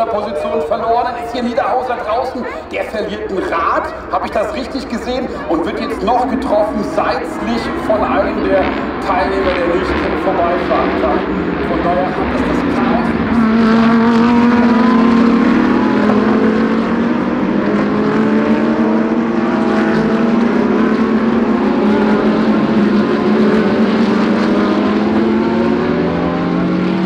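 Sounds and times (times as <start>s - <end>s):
race car engines passing: 0.0s - 27.0s.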